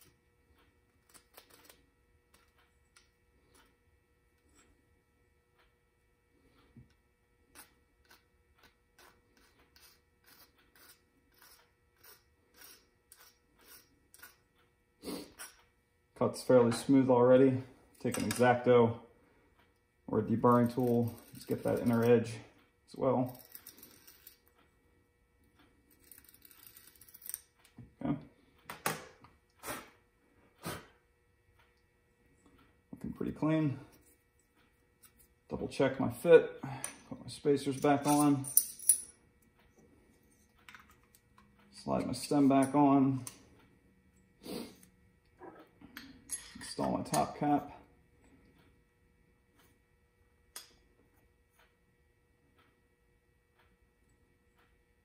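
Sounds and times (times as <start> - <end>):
file scraping metal: 8.9 - 14.4.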